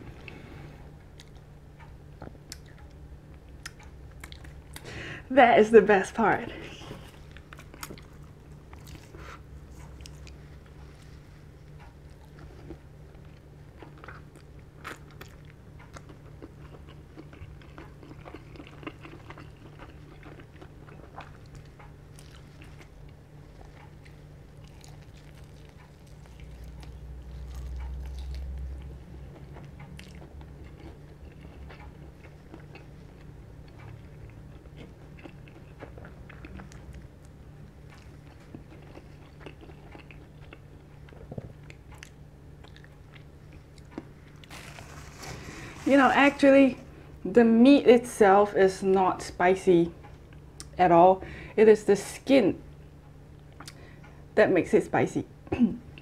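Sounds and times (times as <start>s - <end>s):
steady low hum: 0.0s - 56.0s
chewing crispy chicken: 1.0s - 5.0s, 6.6s - 47.1s.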